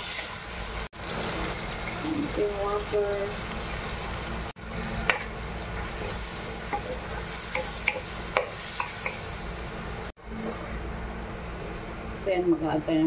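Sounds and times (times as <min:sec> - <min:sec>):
food hissing in wok: 0:05.9 - 0:09.8.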